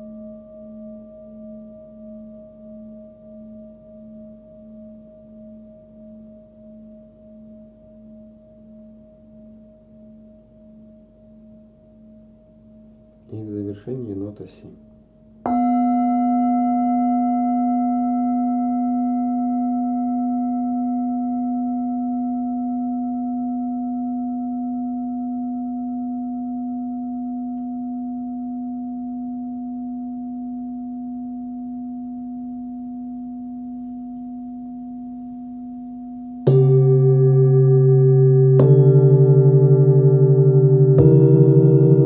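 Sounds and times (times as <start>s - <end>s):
singing bowl ringing: 14.8s - 42.0s.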